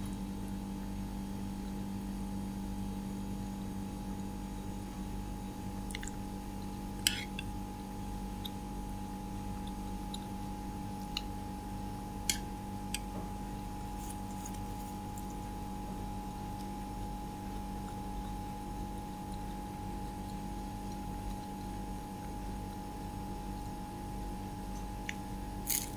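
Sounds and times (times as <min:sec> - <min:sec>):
electrical hum: 0:00.0 - 0:25.9.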